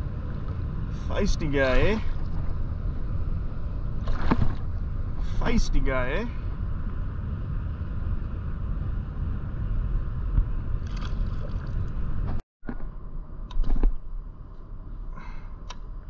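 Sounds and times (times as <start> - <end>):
steady low rumble: 0.0 - 16.0
paddle swishing water: 4.0 - 4.7.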